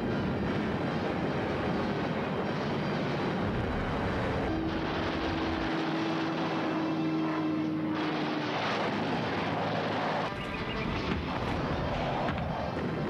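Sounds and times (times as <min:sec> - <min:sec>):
propeller aircraft engines droning: 0:00.0 - 0:13.0
steady hum: 0:02.4 - 0:06.7.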